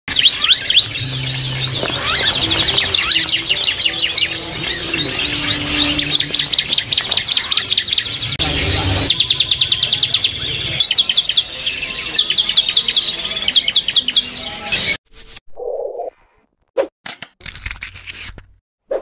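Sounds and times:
songbirds chirping: 0.1 - 15.0.

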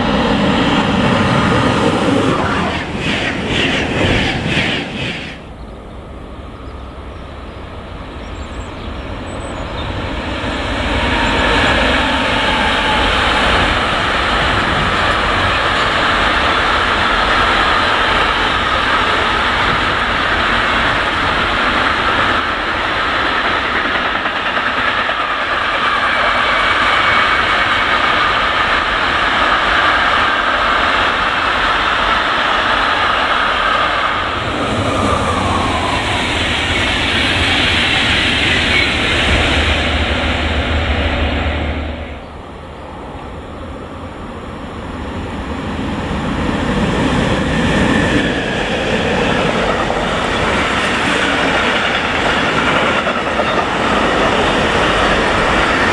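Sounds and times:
freight train rumbling past: 0.0 - 55.9
passenger train passing: 0.0 - 55.9.

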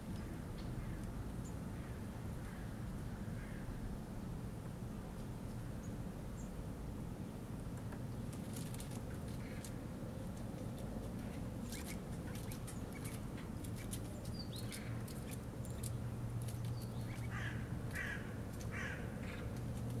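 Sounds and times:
crow cawing: 17.3 - 19.4.

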